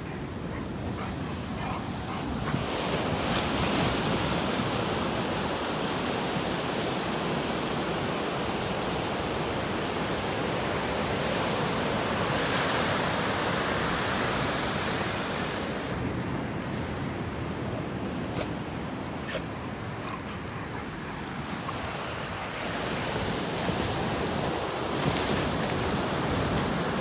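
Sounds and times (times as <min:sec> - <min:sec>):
ocean surf breaking on shore: 0:00.0 - 0:16.7, 0:20.9 - 0:27.0.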